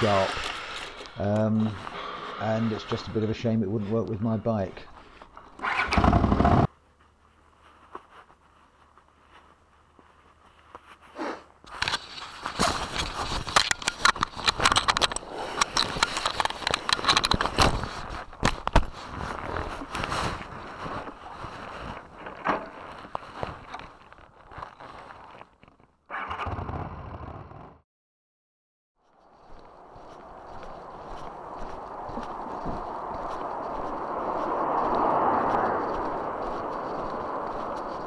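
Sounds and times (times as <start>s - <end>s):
microphone contact rustling: 7.5s - 25.4s
low hum: 29.2s - 38.0s.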